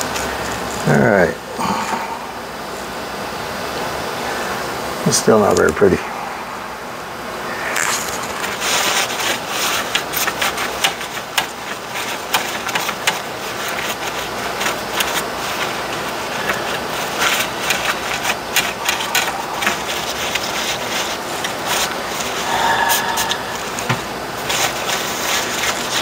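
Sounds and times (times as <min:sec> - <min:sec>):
paper wipe scrubbing circuit board: 0:07.8 - 0:22.5, 0:23.2 - 0:26.0.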